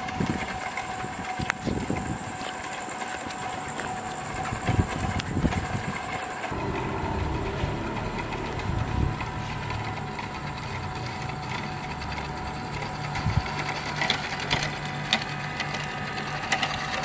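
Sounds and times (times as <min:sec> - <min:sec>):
toy truck motor whirring: 0:00.0 - 0:17.0
tyres rolling on rough pavement: 0:00.0 - 0:17.0.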